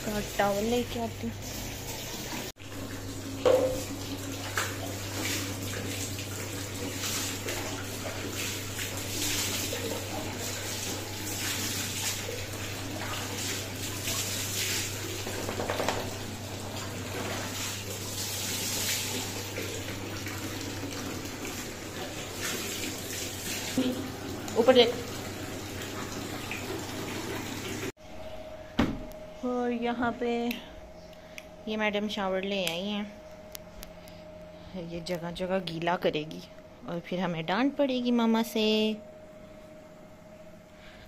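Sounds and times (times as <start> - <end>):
water running and splashing: 0.0 - 27.9.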